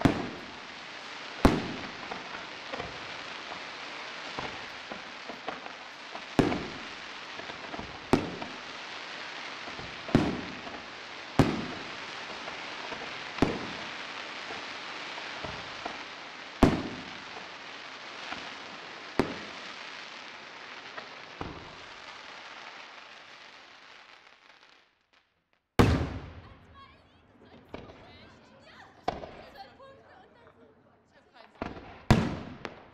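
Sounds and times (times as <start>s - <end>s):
firework shells bursting: 0.0s - 20.3s
steady hiss: 0.0s - 24.2s
small firework pops: 0.0s - 26.7s, 27.5s - 28.3s, 28.9s - 29.6s, 31.4s - 32.9s.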